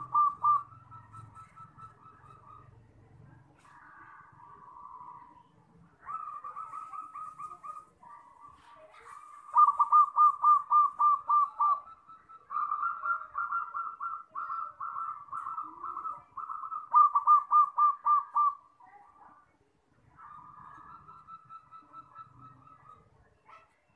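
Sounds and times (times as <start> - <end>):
dove cooing: 0.0 - 3.0, 3.6 - 18.8, 20.1 - 23.9.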